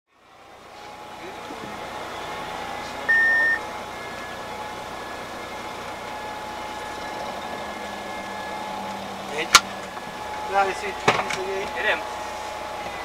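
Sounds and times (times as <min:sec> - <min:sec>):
faint whining tones: 0:00.2 - 0:13.0
fire truck engine idling: 0:00.2 - 0:13.0
loud high beep: 0:03.1 - 0:03.6.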